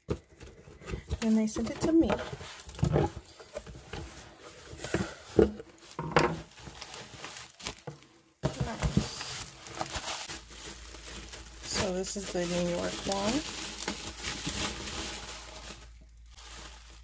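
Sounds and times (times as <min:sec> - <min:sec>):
bubble wrap and cardboard rustling: 0:00.0 - 0:17.0.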